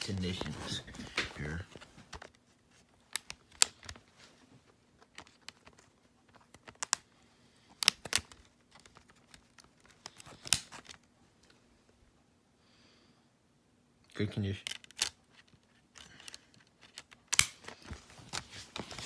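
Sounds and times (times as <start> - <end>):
plastic disc case clicking: 3.1 - 4.0, 5.0 - 7.1, 7.8 - 11.0, 14.6 - 19.0.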